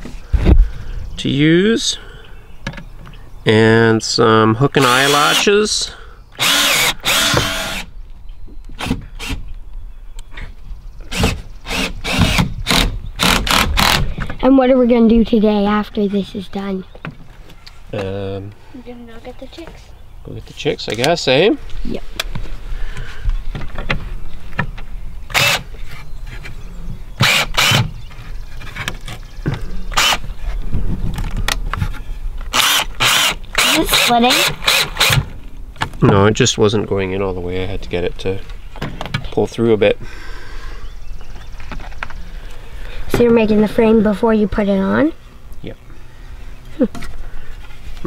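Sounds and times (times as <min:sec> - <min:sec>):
cordless drill driving screw into wood: 0:04.8 - 0:05.5, 0:06.4 - 0:07.9, 0:08.8 - 0:09.4, 0:11.1 - 0:14.1, 0:25.3 - 0:25.7, 0:27.2 - 0:27.9, 0:29.9 - 0:30.2, 0:32.5 - 0:35.3.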